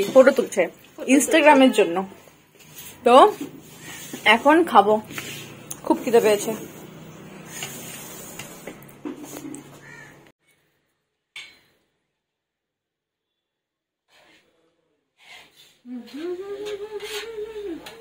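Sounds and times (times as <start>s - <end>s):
drawn-out vocal tone: 15.8s - 18.0s.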